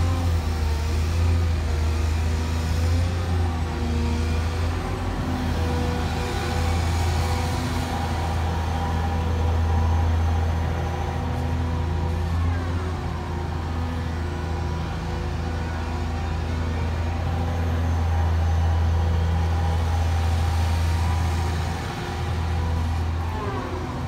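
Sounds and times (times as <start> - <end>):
diesel engine running: 0.0 - 24.0.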